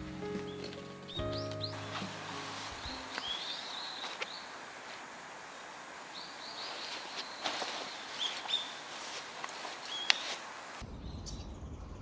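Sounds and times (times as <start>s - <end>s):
canvas tent rustling: 0.0s - 10.8s
small birds chirping: 0.0s - 12.0s.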